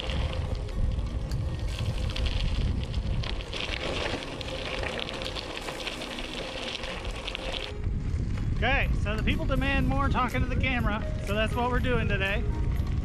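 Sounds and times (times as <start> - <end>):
bicycle tyres crunching on gravel: 0.0 - 9.5
wind buffeting microphone: 0.0 - 13.0.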